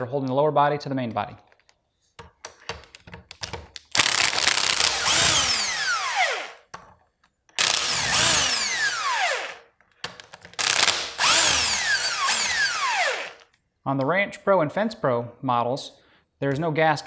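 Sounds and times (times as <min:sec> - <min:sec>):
impact driver whirring: 0:03.9 - 0:06.7, 0:07.6 - 0:09.7, 0:10.6 - 0:13.5.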